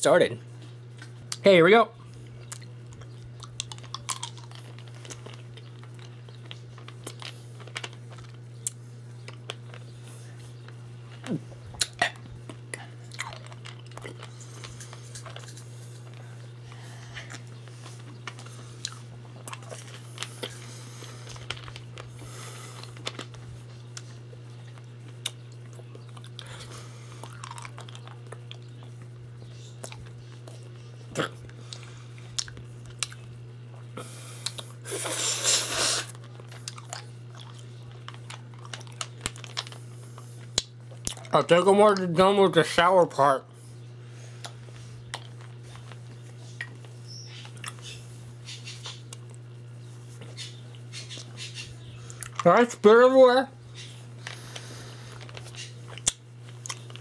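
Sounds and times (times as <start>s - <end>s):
person sucking and chewing candy: 2.5s - 9.8s, 11.2s - 24.2s, 24.8s - 28.6s, 29.8s - 41.3s, 53.8s - 57.0s.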